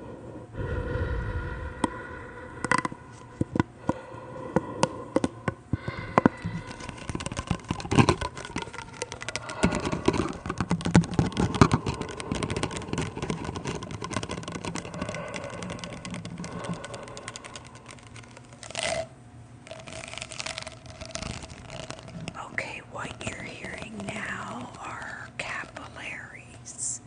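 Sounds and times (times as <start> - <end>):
crackling rattle with low buzz: 0.5 - 26.7
plastic pop tube clicks: 4.8 - 19.0.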